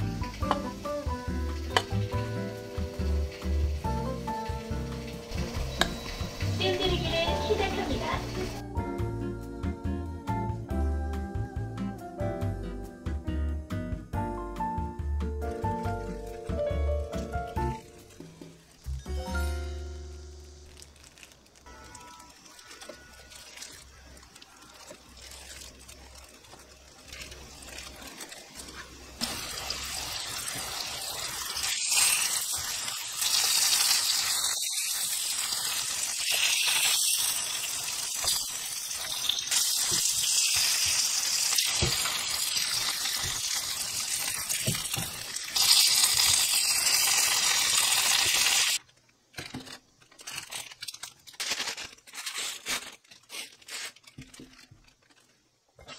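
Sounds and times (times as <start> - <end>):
fish sizzling in hot oil: 0.0 - 8.6, 15.4 - 48.8.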